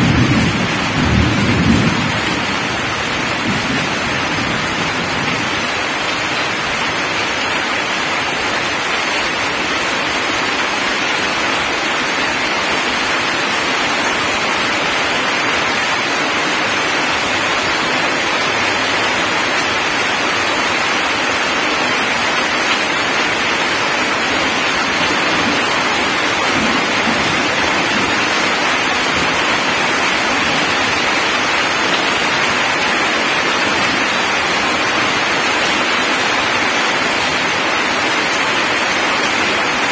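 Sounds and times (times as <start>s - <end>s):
heavy rain on gravel: 0.0s - 39.9s.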